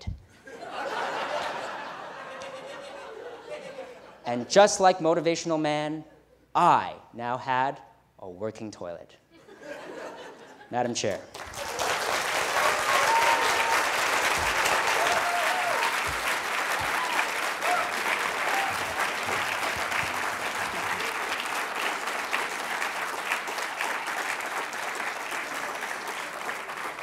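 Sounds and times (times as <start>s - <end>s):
audience applauding: 11.3s - 27.0s.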